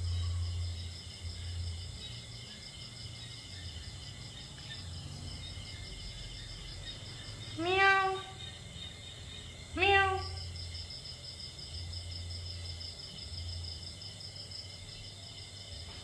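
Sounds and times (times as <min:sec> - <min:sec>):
kitten meowing: 0:07.6 - 0:08.4, 0:09.8 - 0:10.4.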